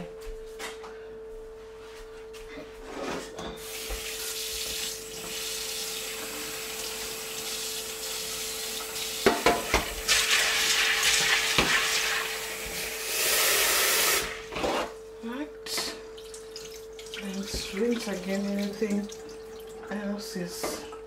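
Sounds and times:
faint steady hum: 3.4s - 21.0s
tap water running into a bowl: 3.7s - 14.2s, 15.8s - 21.0s.

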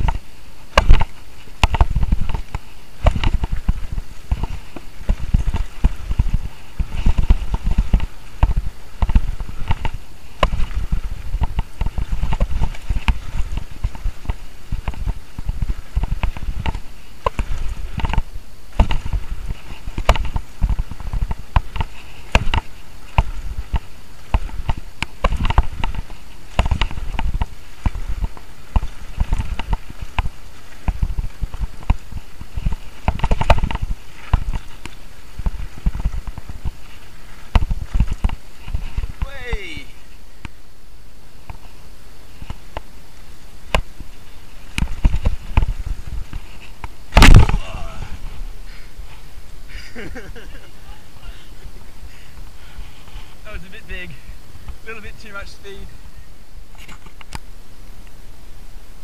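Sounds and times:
mountain bike rattling and clattering: 0.0s - 39.3s
wind rumbling on microphone: 0.0s - 59.0s.

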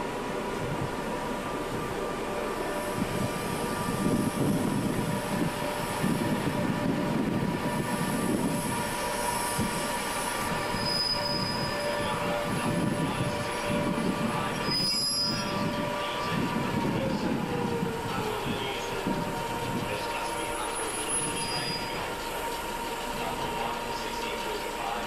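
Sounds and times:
locomotive rumbling: 0.0s - 25.0s
high brake squeals: 7.8s - 16.4s, 18.9s - 24.6s.

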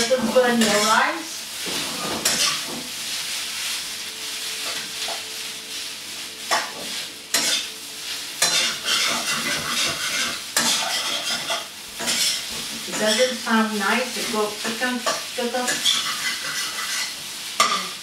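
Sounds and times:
metal spatula scraping a pan: 0.0s - 3.0s, 6.5s - 7.7s, 8.4s - 18.0s
rice sizzling in a frying pan: 0.0s - 18.0s.

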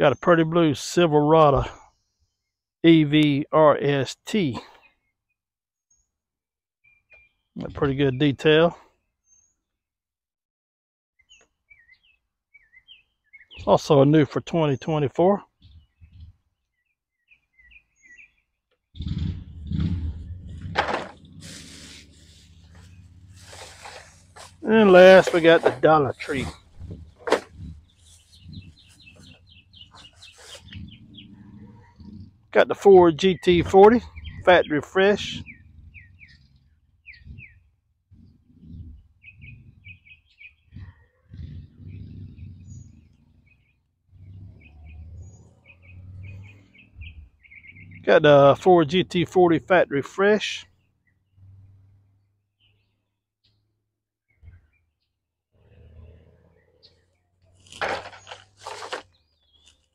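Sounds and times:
small birds chirping: 4.2s - 6.2s, 6.8s - 9.8s, 11.2s - 59.9s
faint bird chirps: 11.2s - 13.7s, 15.5s - 18.6s, 27.5s - 32.4s, 35.4s - 48.1s
low handling rumble: 19.0s - 32.4s.

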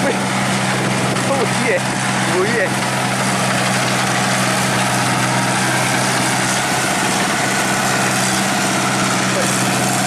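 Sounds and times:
combine harvester engine running: 0.0s - 10.0s.

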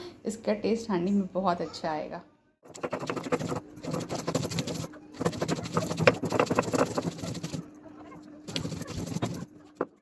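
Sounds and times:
grinding stone scraping on stone: 2.7s - 7.6s, 8.4s - 10.0s.

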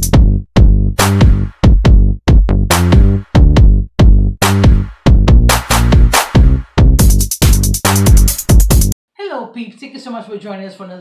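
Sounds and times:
electronic dance music: 1.0s - 2.0s, 2.7s - 9.0s.

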